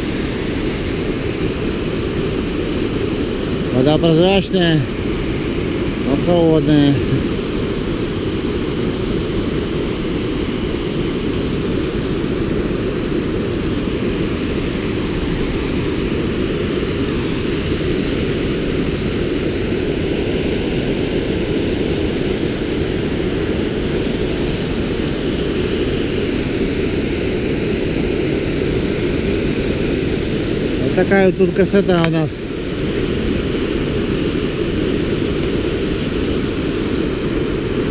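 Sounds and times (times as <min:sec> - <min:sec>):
waterfall rushing over rocks: 0:00.0 - 0:37.9.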